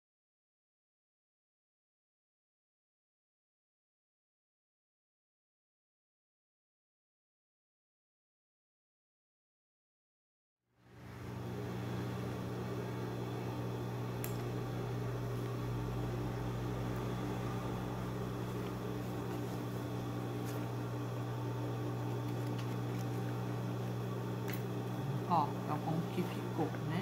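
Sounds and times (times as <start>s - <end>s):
sewing machine motor humming: 11.1s - 27.0s.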